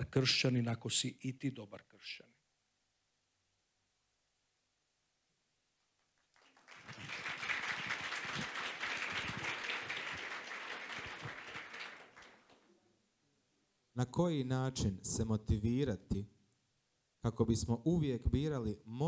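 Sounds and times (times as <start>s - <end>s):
small audience applauding: 6.0s - 12.7s.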